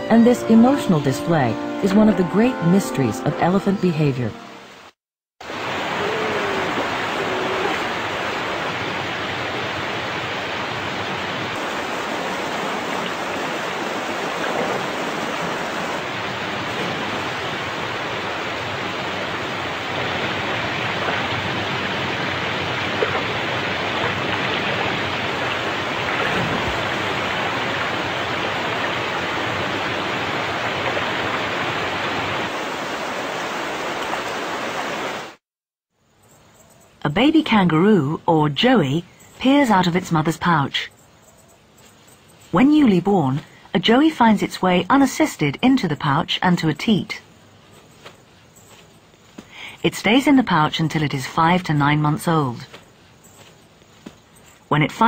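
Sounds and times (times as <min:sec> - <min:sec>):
water rushing over waterfall: 0:05.4 - 0:35.4.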